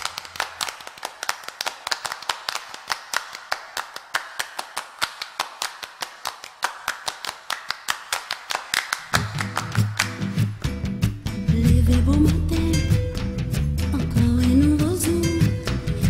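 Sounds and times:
hand clapping to a beat: 0.0 - 11.3
bass and guitar: 9.2 - 16.0.

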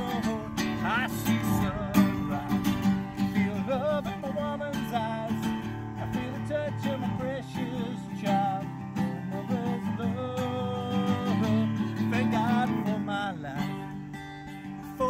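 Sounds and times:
wordless wavering melody: 0.0 - 9.4
acoustic guitar strumming: 0.0 - 15.0.

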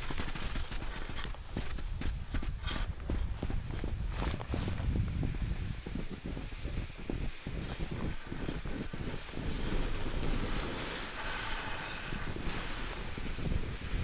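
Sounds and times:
skis hissing over snow: 0.0 - 14.0
wind over microphone: 0.0 - 14.0
ski scrapes: 2.6 - 3.0, 4.1 - 14.0.

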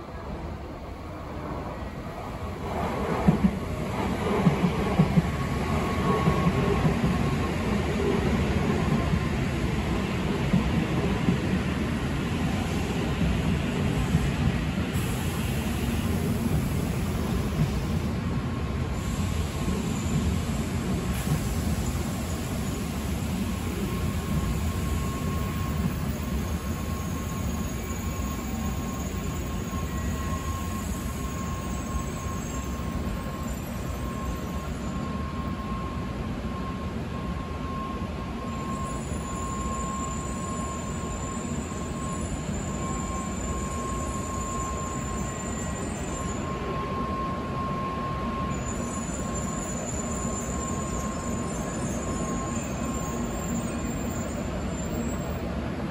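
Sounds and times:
train wheels rumbling on rail: 0.0 - 55.9
thin steady whine: 22.4 - 55.4
high squeals: 24.4 - 35.9, 38.5 - 55.3.

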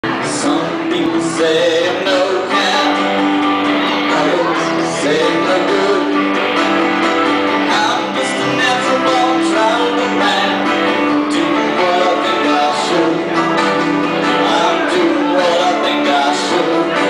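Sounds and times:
live band playing: 0.0 - 17.0.

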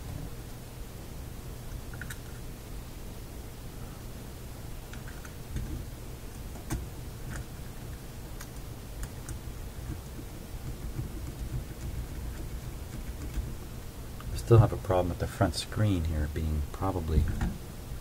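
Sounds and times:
low steady rumble: 2.5 - 18.0
meter leads clicking and tapping: 8.4 - 14.4.

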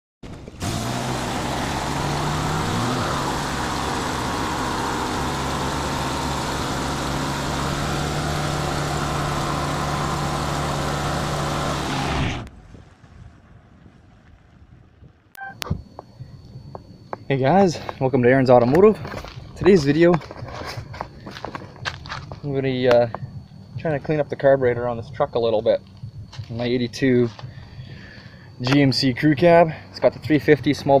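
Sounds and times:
engine running at high revs: 0.3 - 12.5
tire screeching on pavement: 0.4 - 12.5.

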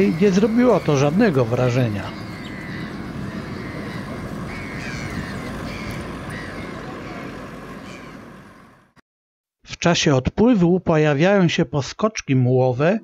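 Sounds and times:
high short bird calls: 0.0 - 8.3
road traffic rumble: 0.0 - 9.0.

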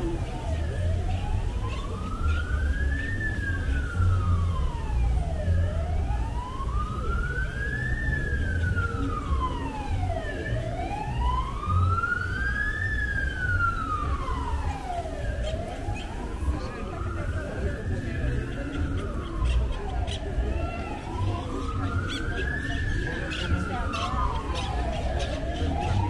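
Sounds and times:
emergency siren wailing: 0.0 - 26.0
low rumble of street noise: 0.0 - 26.0.

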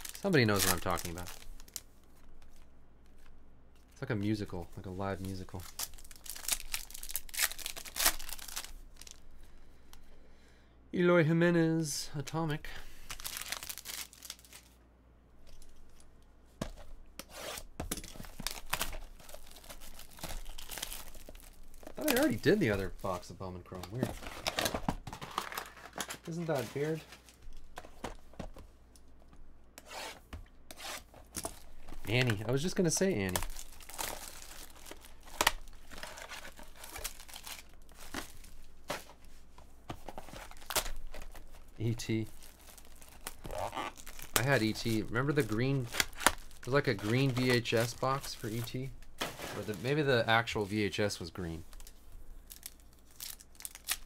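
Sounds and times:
plastic wrap crinkling and tearing: 0.0 - 1.9, 4.9 - 9.3, 13.0 - 14.8, 18.0 - 27.7, 31.5 - 39.3, 39.9 - 50.7, 51.4 - 54.0.

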